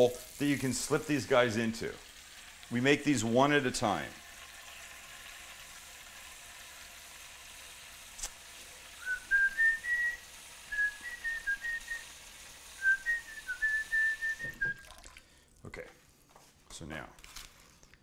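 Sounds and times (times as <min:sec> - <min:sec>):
person whistling: 0:09.0 - 0:12.1, 0:12.8 - 0:14.9
faucet running into bowl: 0:13.6 - 0:15.2.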